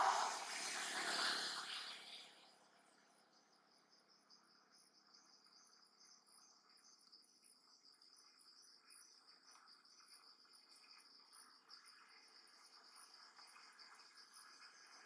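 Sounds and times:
quiet forest background: 0.0 - 15.0
insect pulsing trill: 3.3 - 15.0.

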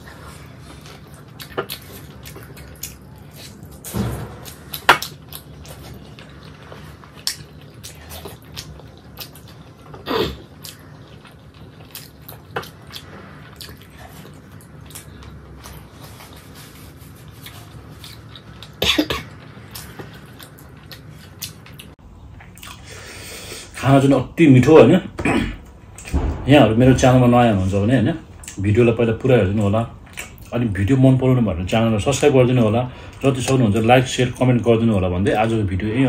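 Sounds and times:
person chewing meat: 0.0 - 23.3.

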